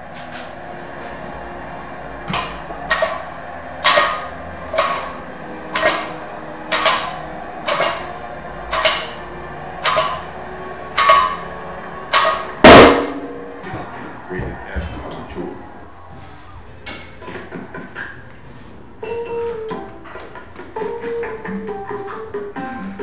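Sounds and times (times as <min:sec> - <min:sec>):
barbell plates clanking: 0:02.3 - 0:09.2, 0:09.8 - 0:13.7
barbell clanging down: 0:02.4 - 0:08.1, 0:08.7 - 0:09.2, 0:09.8 - 0:10.3, 0:10.9 - 0:11.5, 0:12.1 - 0:13.6.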